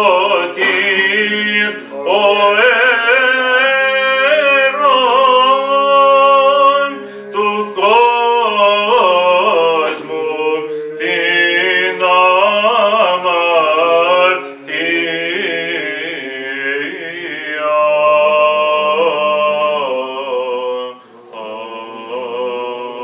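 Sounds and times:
unaccompanied choral chant: 0:00.0 - 0:23.0
held low drone voice: 0:04.3 - 0:12.9.

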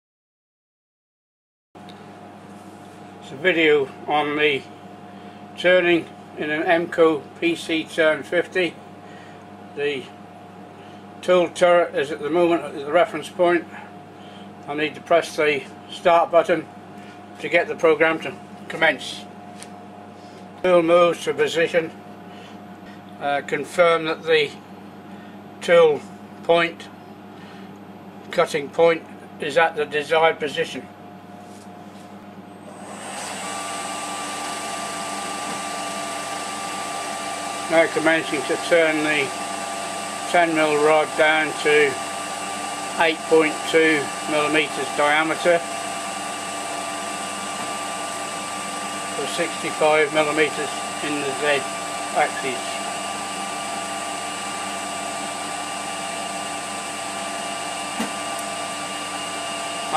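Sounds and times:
lathe spindle whine: 0:32.6 - 0:59.9.

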